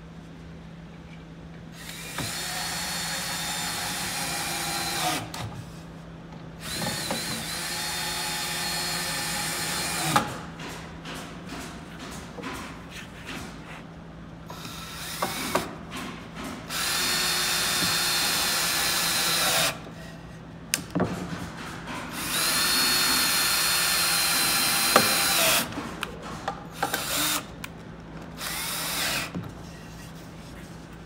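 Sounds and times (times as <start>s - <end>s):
cordless drill driving screws: 1.8s - 5.3s, 6.6s - 10.3s, 16.7s - 19.8s, 22.1s - 25.7s, 26.8s - 27.5s, 28.4s - 29.3s.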